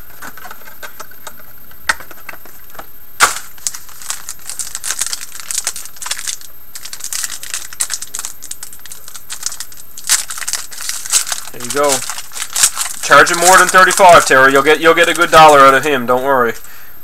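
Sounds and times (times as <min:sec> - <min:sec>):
foil wrapper crinkling: 0:00.0 - 0:16.8
foil pack snapping: 0:03.2 - 0:15.8.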